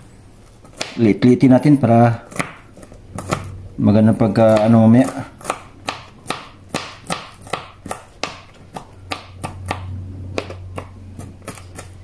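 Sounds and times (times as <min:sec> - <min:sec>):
knife chopping on cutting board: 0:00.7 - 0:01.0, 0:02.3 - 0:03.5, 0:04.4 - 0:12.0.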